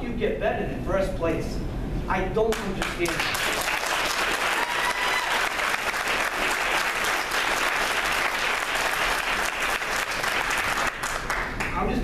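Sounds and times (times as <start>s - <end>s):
audience applauding: 2.8s - 11.8s.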